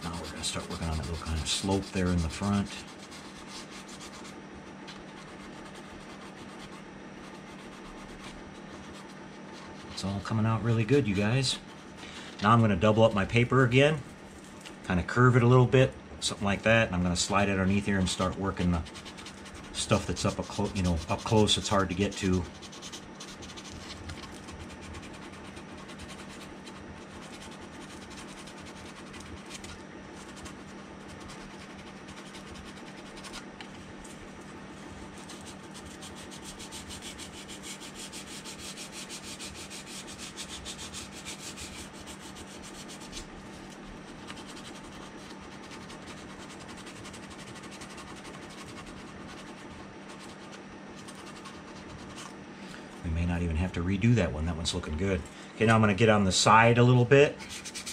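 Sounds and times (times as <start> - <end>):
sandpaper scratching on plastic: 0.0 - 11.9, 17.4 - 33.6, 35.0 - 52.4, 57.4 - 57.9.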